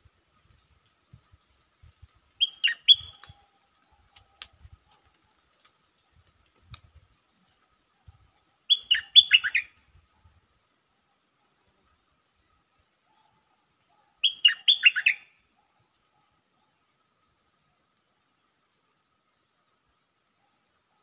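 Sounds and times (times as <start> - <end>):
bird whistled calls: 2.4 - 3.3, 8.7 - 9.8, 14.2 - 15.4.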